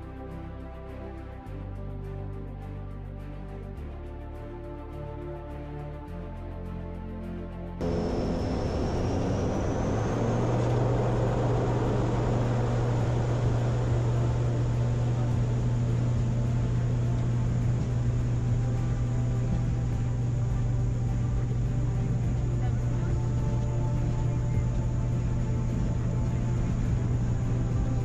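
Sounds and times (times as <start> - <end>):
jet engines spooling up: 7.8 - 28.0.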